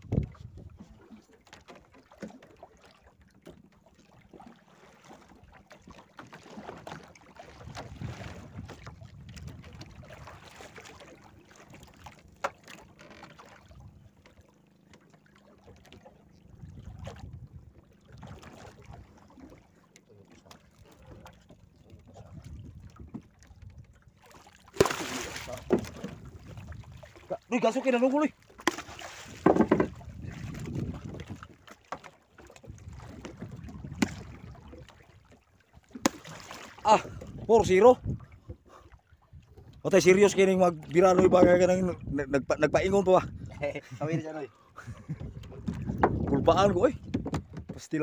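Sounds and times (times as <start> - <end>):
wind on microphone: 0.0 - 1.0, 7.6 - 10.4, 16.5 - 19.1, 21.8 - 24.0, 25.6 - 27.4, 29.2 - 31.6, 32.6 - 34.9, 37.0 - 38.6, 39.3 - 44.2, 44.8 - 47.8
water lapping around boat: 0.0 - 48.0
fish splashing at surface: 24.6 - 26.2, 36.0 - 36.8.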